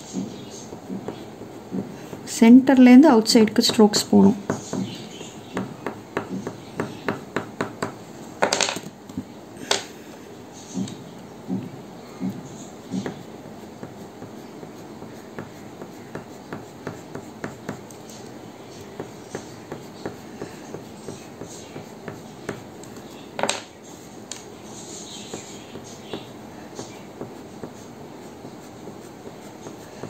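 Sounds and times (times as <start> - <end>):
crayon scratching on paper: 12.5 - 22.6, 23.9 - 30.0.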